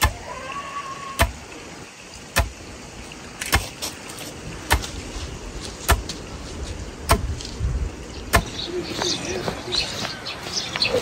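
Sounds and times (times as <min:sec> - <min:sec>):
pestle pounding in wooden mortar: 0:07.1 - 0:07.4.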